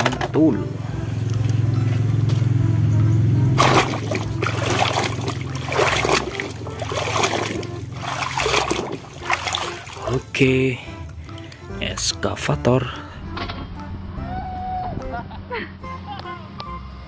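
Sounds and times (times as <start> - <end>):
steady low hum: 0.7 - 10.1
hands splashing in muddy water: 3.6 - 10.4.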